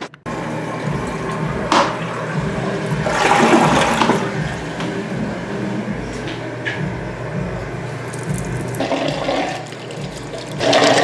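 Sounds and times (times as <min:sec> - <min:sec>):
toilet flushing: 0:00.3 - 0:05.8, 0:07.8 - 0:11.0.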